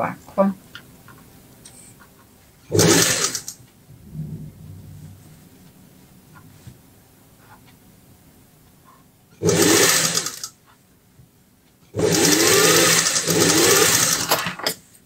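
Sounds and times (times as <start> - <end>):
sewing machine stitching: 2.7 - 3.6, 9.4 - 10.6, 11.9 - 14.8.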